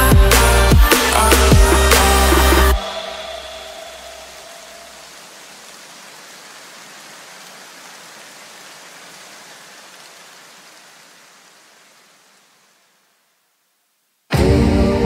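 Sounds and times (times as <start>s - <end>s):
white noise hiss: 0.4s - 14.4s.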